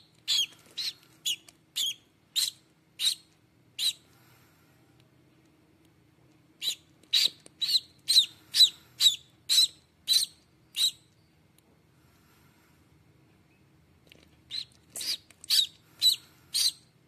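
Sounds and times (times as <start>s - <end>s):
duckling peeping: 0.2s - 4.1s, 6.6s - 11.1s, 14.5s - 16.9s.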